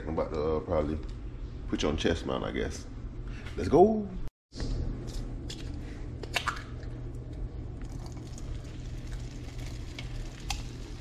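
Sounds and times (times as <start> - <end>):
butter bubbling and crackling: 7.6 - 11.0.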